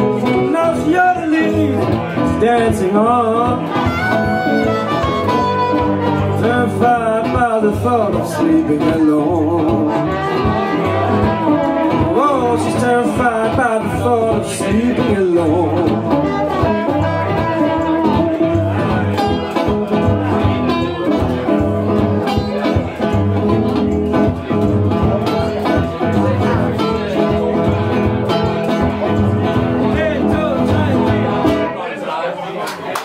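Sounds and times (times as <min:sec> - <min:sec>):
acoustic guitars strumming: 0:00.0 - 0:31.8
harmonica bending notes: 0:03.4 - 0:07.1, 0:09.5 - 0:13.4, 0:15.8 - 0:19.4.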